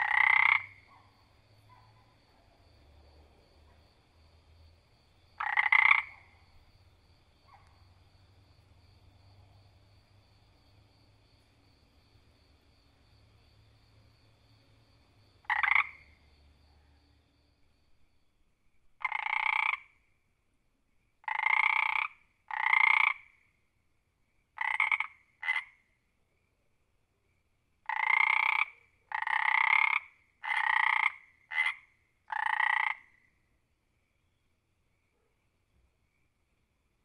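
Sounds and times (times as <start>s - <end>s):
frog croaking: 0.0s - 2.2s, 5.2s - 6.8s, 15.4s - 16.4s, 19.0s - 20.0s, 21.2s - 23.5s, 24.6s - 25.9s, 27.8s - 33.4s.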